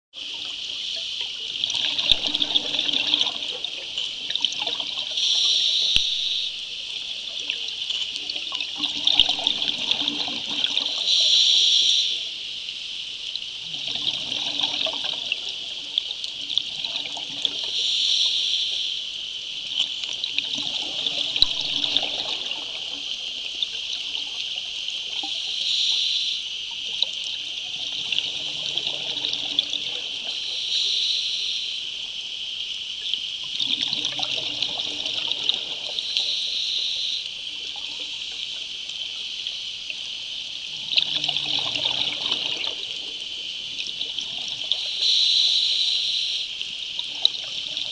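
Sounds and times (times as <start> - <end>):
steady high crackling hiss: 0.2 - 47.9
bubbly gurgling exhalation: 1.6 - 5.2, 8.6 - 11.0, 20.3 - 23.6, 33.5 - 36.0, 40.7 - 44.8
regulator hissing inhalation: 5.1 - 6.9, 10.9 - 13.0, 17.6 - 19.5, 25.3 - 26.8, 28.4 - 32.0, 35.4 - 37.4, 44.1 - 46.9.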